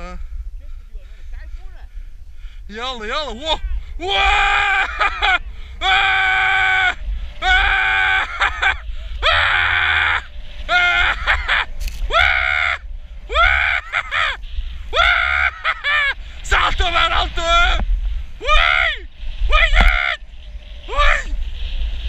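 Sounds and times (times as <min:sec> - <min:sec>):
wind on microphone: 0:00.0 - 0:22.0
person yelling whoops: 0:04.0 - 0:14.4, 0:18.4 - 0:20.2, 0:20.9 - 0:21.3.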